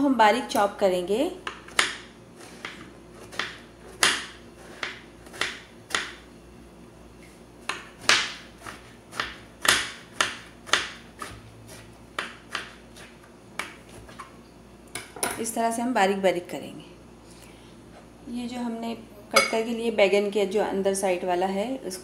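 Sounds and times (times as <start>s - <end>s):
knife chopping on cutting board: 1.4s - 6.2s, 7.6s - 14.3s.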